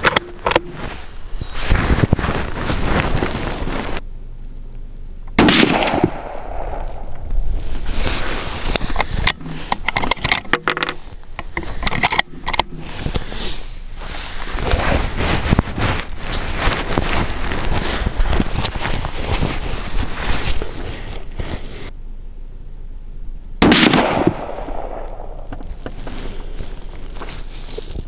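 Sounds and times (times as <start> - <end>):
rifle shot: 5.3 - 7.2, 23.6 - 25.5.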